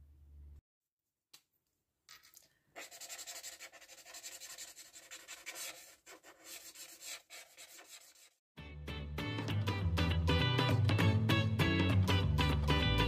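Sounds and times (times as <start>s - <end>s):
felt-tip marker scribbling on paper: 2.8s - 8.4s.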